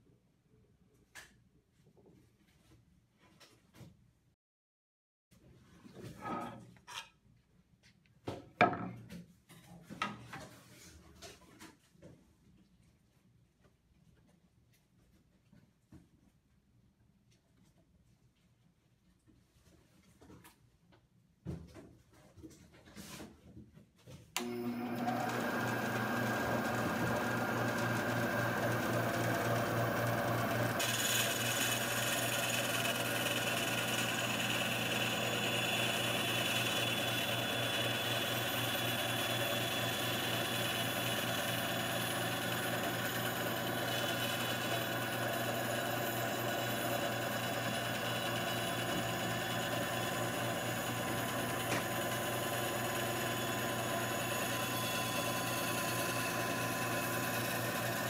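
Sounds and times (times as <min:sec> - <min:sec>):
band saw motor hum: 0:24.4 - 0:58.0
saw blade cutting plywood: 0:24.4 - 0:58.0.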